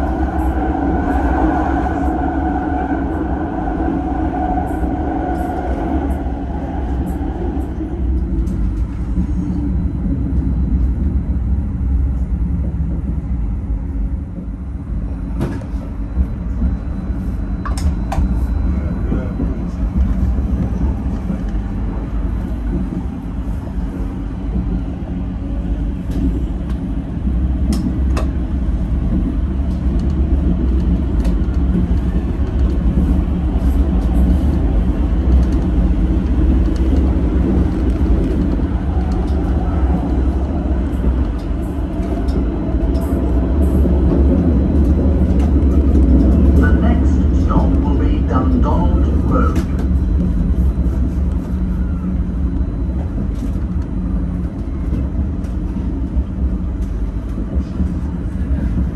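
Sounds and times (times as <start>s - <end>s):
tram rumbling on rails: 0.0s - 58.9s.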